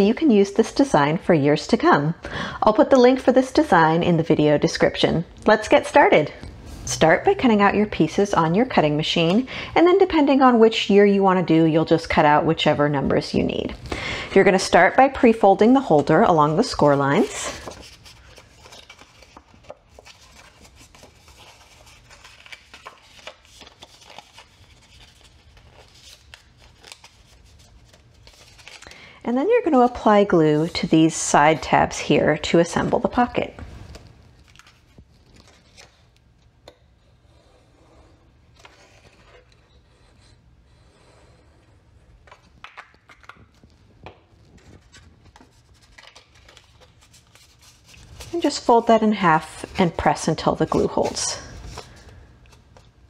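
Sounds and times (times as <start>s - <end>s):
card crackling and rustling: 15.0s - 29.0s, 32.8s - 36.8s, 38.5s - 40.1s, 42.1s - 53.0s.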